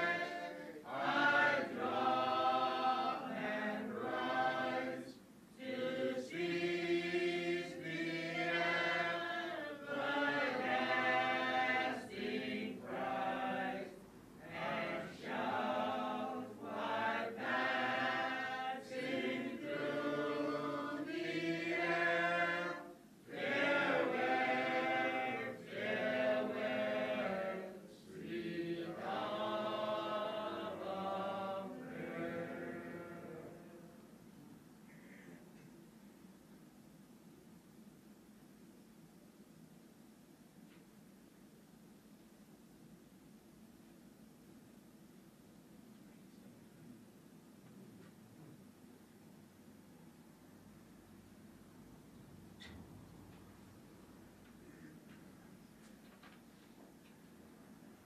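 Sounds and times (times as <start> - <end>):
choir singing: 0.0 - 34.2.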